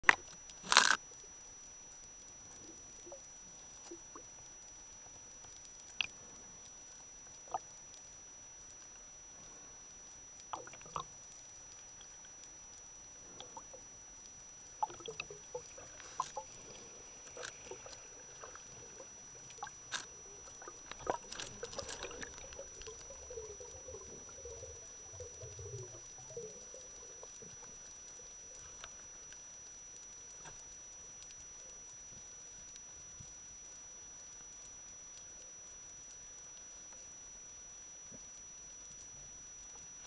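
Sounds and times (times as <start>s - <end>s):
faint high whine: 0.0s - 40.0s
sharp underwater clicks and crackles: 0.0s - 40.0s
bubbling gurgle: 14.8s - 27.8s.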